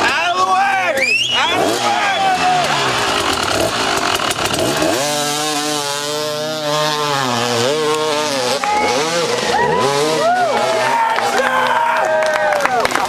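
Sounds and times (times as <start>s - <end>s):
dirt bike engine revving: 0.0s - 11.8s
rough clattering noise: 2.6s - 6.0s.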